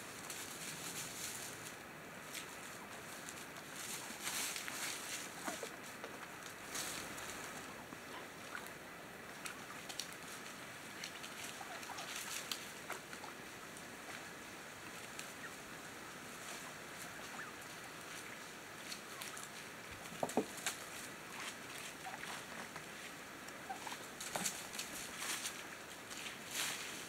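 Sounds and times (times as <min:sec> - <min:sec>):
turkeys pecking and stepping: 0:00.0 - 0:27.0
turkey calls: 0:03.9 - 0:14.0, 0:14.6 - 0:25.6.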